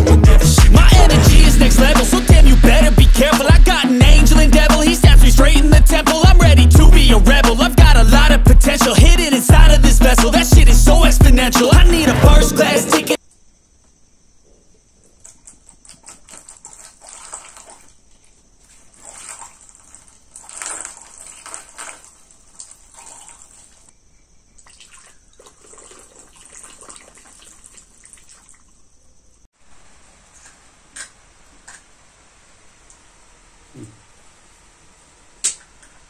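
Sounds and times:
water splashing into plastic funnel: 0:15.2 - 0:23.9, 0:24.6 - 0:28.8.

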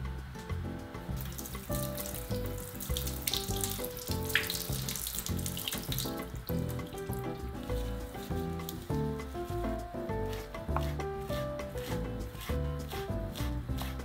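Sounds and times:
tap water splashing into sink: 0:01.2 - 0:07.0.

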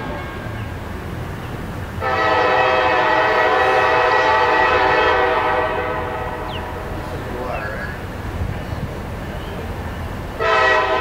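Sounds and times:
locomotive air horn blast: 0:02.0 - 0:07.3, 0:10.4 - 0:11.0.

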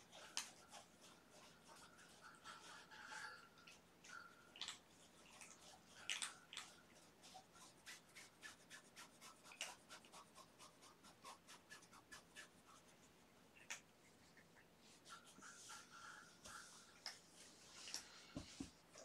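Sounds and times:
kitten claws scratching: 0:04.5 - 0:18.0.

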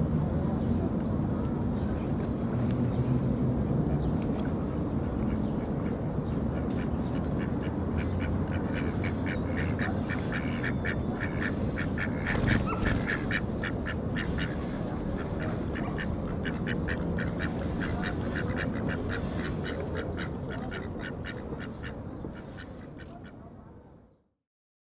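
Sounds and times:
duck quacking: 0:08.0 - 0:23.4.

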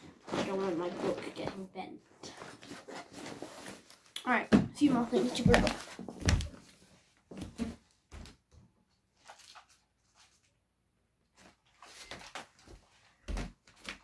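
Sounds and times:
knocks and thumps of handling things: 0:04.4 - 0:08.4.

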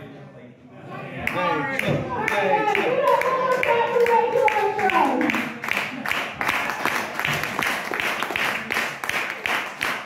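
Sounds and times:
crowd clapping in rhythm: 0:01.2 - 0:10.0.

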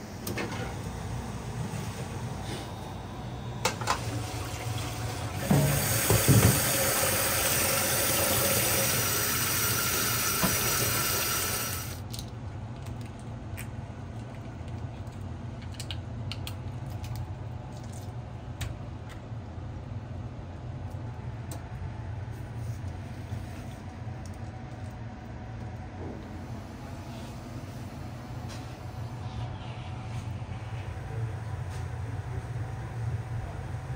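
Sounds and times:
low kitchen hum: 0:00.0 - 0:33.9
tap water running into sink: 0:03.8 - 0:12.0.

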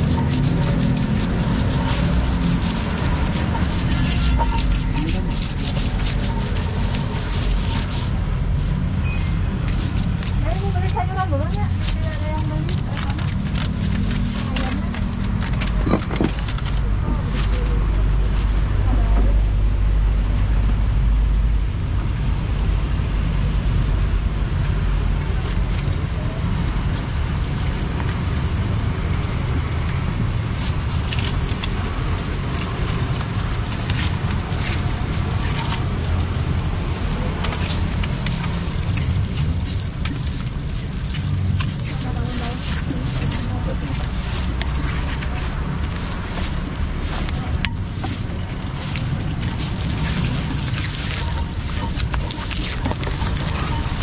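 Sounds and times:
stone pestle grinding in mortar: 0:00.0 - 0:17.4, 0:30.2 - 0:54.0
street traffic rumble: 0:00.0 - 0:54.0.

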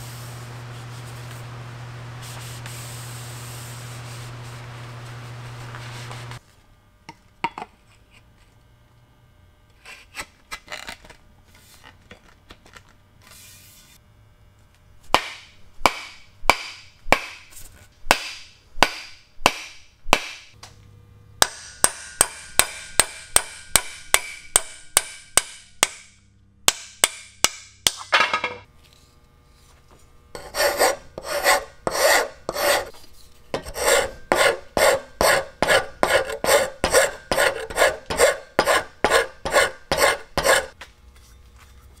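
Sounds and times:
file rasping on wood: 0:30.4 - 0:32.9, 0:33.6 - 0:40.8.

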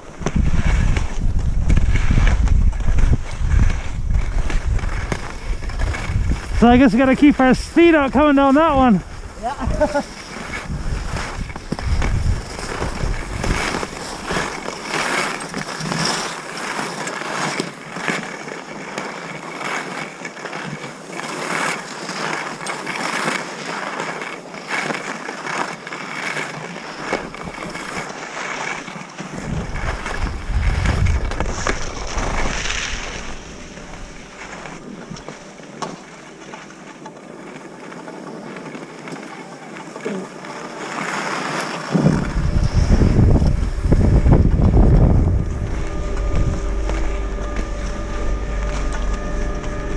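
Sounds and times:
wind buffeting microphone: 0:00.0 - 0:16.0, 0:29.3 - 0:36.8, 0:41.9 - 0:49.9
skis scraping over snow: 0:00.0 - 0:49.9.

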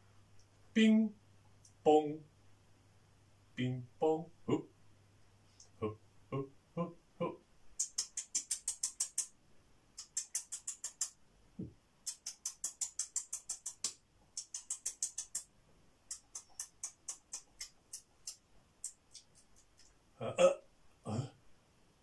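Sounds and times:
mouth-made nibbling clicks: 0:07.8 - 0:09.3, 0:10.0 - 0:11.2, 0:12.0 - 0:20.0
brief low vocal sound: 0:20.2 - 0:21.4.

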